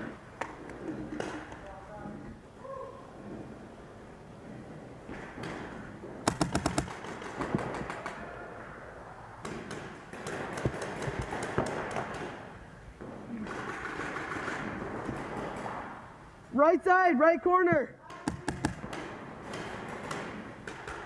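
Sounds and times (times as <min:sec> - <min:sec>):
paintball markers firing: 0:05.2 - 0:08.3, 0:09.4 - 0:12.6, 0:13.4 - 0:15.9, 0:18.0 - 0:21.0.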